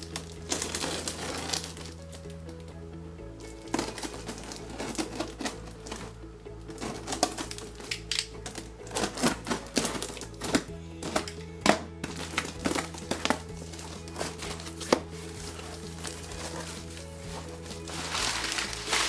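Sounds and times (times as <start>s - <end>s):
tape and film crinkling: 0.0s - 2.6s, 3.4s - 19.0s
background music: 0.0s - 19.0s
cardboard box being opened: 3.6s - 6.2s, 6.8s - 7.8s, 12.0s - 19.0s.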